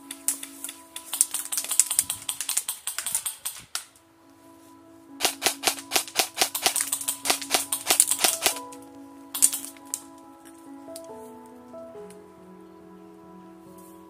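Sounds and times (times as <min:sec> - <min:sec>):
music with held tones: 0:00.0 - 0:03.2, 0:03.8 - 0:14.0
airsoft gun rapid firing: 0:05.2 - 0:08.6.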